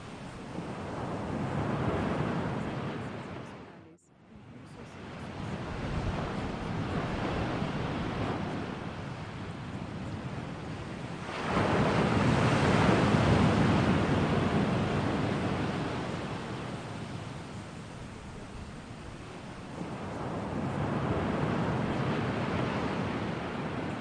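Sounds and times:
ocean surf rushing: 0.0s - 24.0s
wave breaking: 11.1s - 24.0s.

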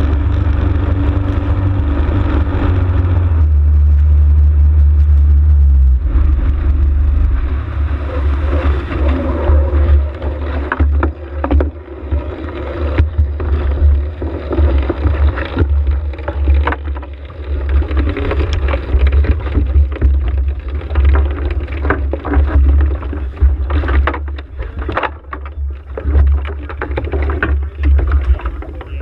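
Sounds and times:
low rumble of wind: 0.0s - 29.0s
water slapping against hull: 7.5s - 29.0s.

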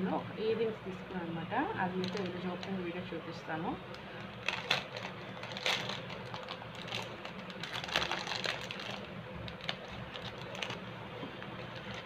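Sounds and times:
packaging rustling and clicking: 2.0s - 2.8s, 3.9s - 12.0s.

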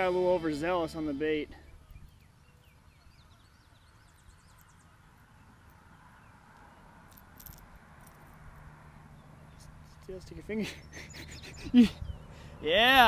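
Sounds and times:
bird trilling chirps: 0.0s - 6.8s, 10.7s - 12.6s.

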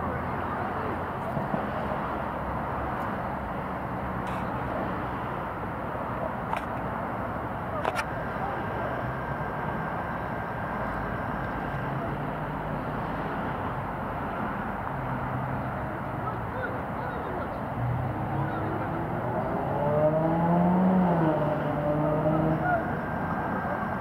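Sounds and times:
faint distant voices: 0.0s - 2.0s, 5.8s - 14.7s, 15.4s - 20.0s, 20.6s - 24.0s
outdoor background noise: 0.0s - 24.0s.

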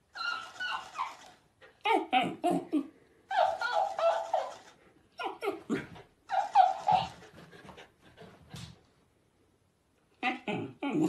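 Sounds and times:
dog whining: 0.0s - 7.2s, 10.2s - 11.0s.

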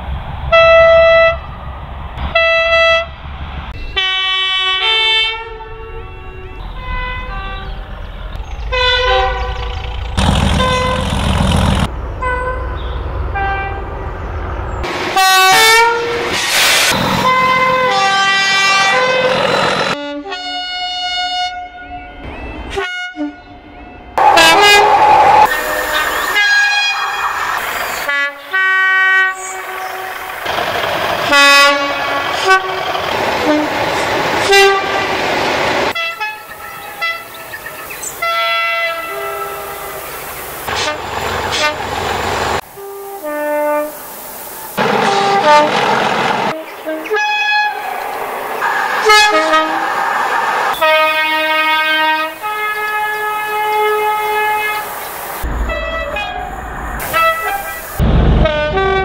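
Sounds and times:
diesel locomotive horn blasts: 0.5s - 1.6s, 2.2s - 3.2s, 3.9s - 8.0s, 8.6s - 14.1s, 14.9s - 16.4s, 17.1s - 30.6s, 31.2s - 35.2s, 35.8s - 44.2s, 44.8s - 48.0s, 48.6s - 50.0s, 50.7s - 54.9s, 55.5s - 59.0s
diesel engine noise: 7.6s - 15.6s, 16.2s - 20.0s, 24.2s - 38.2s, 38.9s - 59.0s.

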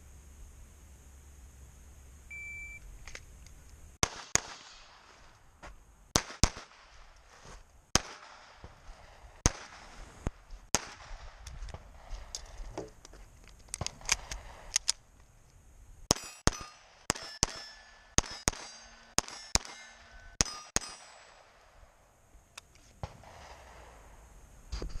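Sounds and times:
pistol shots: 4.0s - 5.3s, 6.1s - 7.1s, 7.9s - 10.0s, 10.7s - 11.4s, 16.1s - 22.0s
steel targets ringing: 16.1s - 21.4s.

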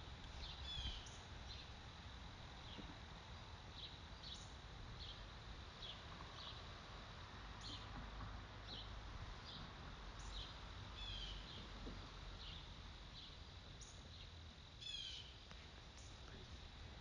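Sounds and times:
steady hiss: 0.0s - 17.0s
small birds chirping: 0.3s - 1.8s, 3.7s - 6.8s, 7.6s - 8.0s, 8.6s - 11.7s, 12.4s - 16.5s.

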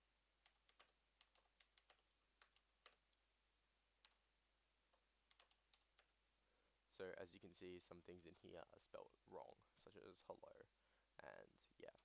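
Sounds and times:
keyboard typing: 0.4s - 3.2s, 4.0s - 4.2s, 5.2s - 6.2s.

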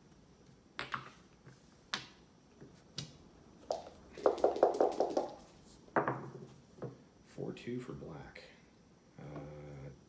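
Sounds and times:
dice rattling in cup: 3.7s - 5.5s.

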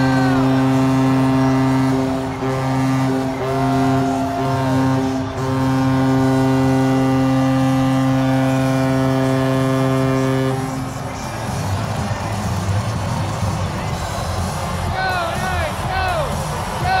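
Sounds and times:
goal horn blasts: 0.0s - 11.2s.

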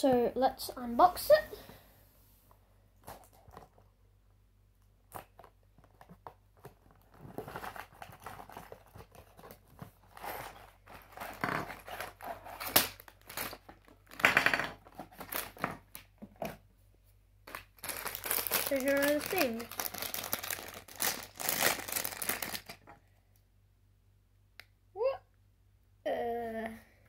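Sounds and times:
plastic bags crinkling: 6.9s - 16.1s, 17.4s - 22.9s
cardboard ripping and scraping: 17.8s - 22.7s.

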